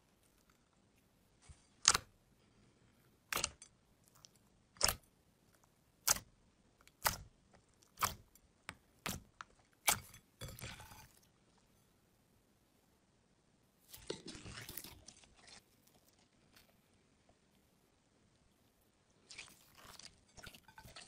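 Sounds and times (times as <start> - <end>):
slime popping wetly: 1.8 - 2.1, 4.8 - 5.1, 6.0 - 6.3, 6.9 - 7.3, 7.9 - 8.3.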